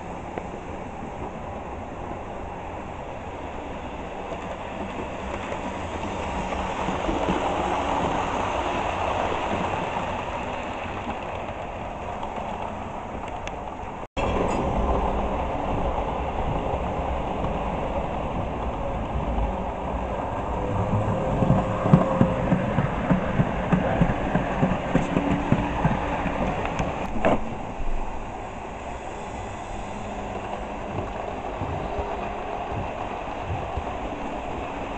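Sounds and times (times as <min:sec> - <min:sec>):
wheels clicking over rail joints: 0:04.2 - 0:27.7.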